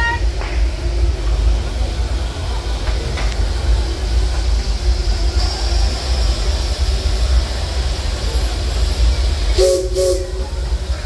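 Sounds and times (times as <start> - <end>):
steam hissing: 0.0 - 11.0
train rumble: 0.0 - 11.0
steam whistle blowing: 9.6 - 10.6.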